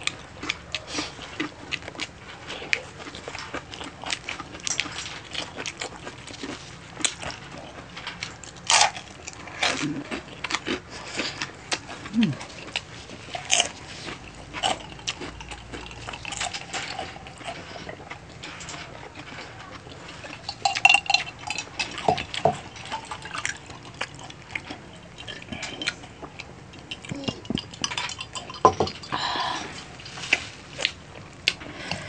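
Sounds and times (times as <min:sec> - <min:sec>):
wet chewing and lip-smacking: 0:00.0 - 0:32.0.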